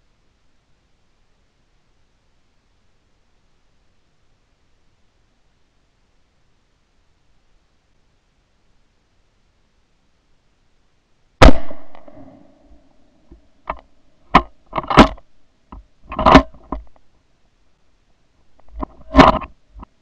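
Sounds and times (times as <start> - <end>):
rifle shot: 11.4 - 12.8
sharp loud cracks: 11.4 - 12.8.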